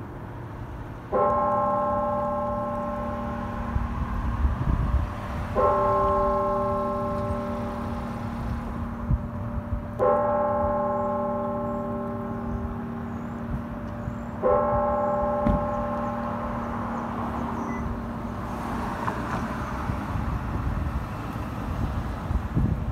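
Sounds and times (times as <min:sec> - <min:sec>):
church bell tolling: 0:01.1 - 0:04.9, 0:05.5 - 0:18.5.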